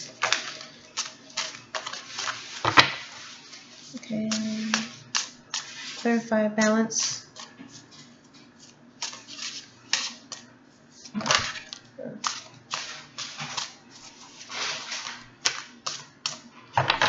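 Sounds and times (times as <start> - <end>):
cards shuffling: 7.4 - 10.5, 11.1 - 16.4.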